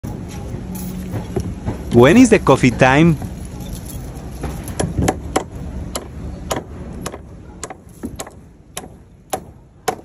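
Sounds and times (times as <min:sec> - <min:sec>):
hammer knocking on wood: 0:04.4 - 0:10.0.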